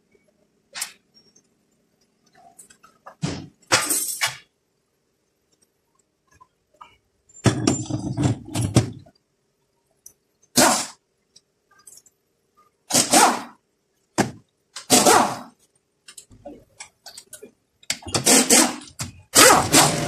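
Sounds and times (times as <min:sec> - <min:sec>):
metal parts clanking: 0:03.7 - 0:04.5, 0:06.8 - 0:09.1.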